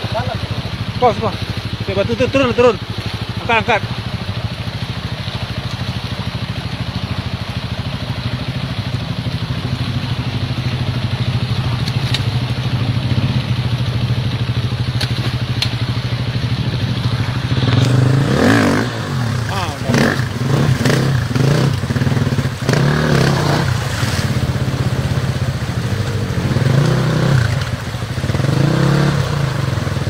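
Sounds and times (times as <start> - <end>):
dirt bike engine running: 0.0 - 30.0.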